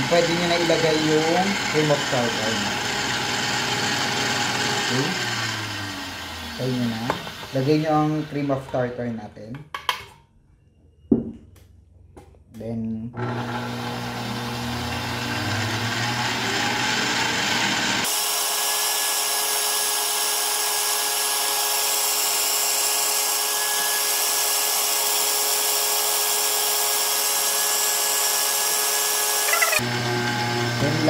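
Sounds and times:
stand mixer whirring: 0.0s - 8.4s, 13.2s - 22.5s, 28.6s - 31.0s.

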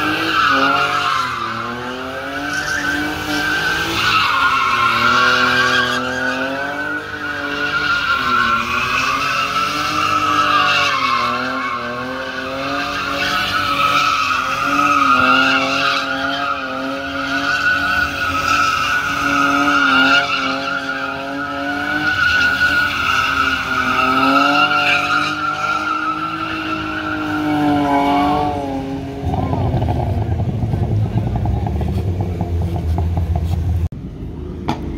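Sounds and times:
car engine revving: 0.0s - 34.9s
tyres squealing: 2.4s - 28.2s.

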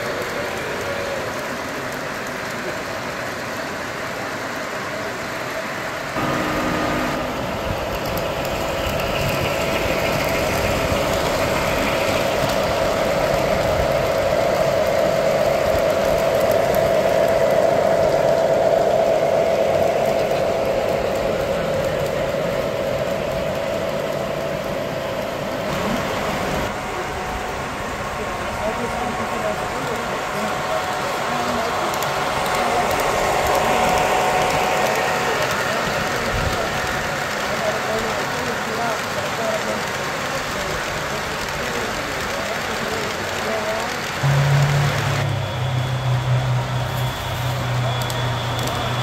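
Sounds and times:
model trains rumbling on track: 0.0s - 49.0s
short steady tone: 44.2s - 48.6s.

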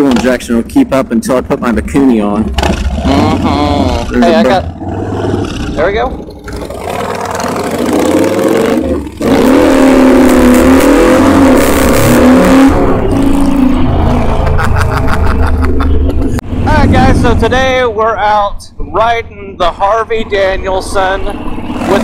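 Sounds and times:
motorcycle engine accelerating: 1.4s - 17.9s, 21.3s - 22.0s.

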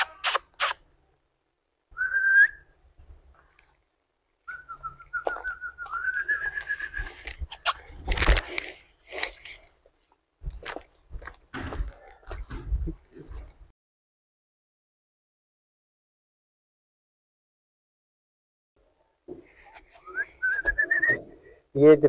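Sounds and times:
person whistling: 2.0s - 2.7s, 4.5s - 7.1s, 20.0s - 21.2s.

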